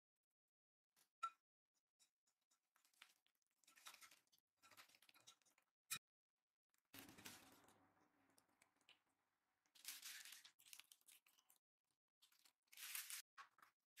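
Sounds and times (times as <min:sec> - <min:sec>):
plastic bag crinkling: 0:09.8 - 0:11.6, 0:12.2 - 0:13.6.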